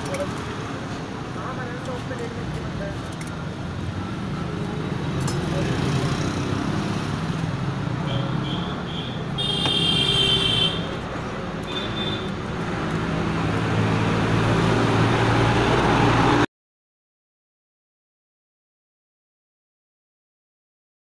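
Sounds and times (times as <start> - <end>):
traffic engine rumble: 0.0 - 16.5.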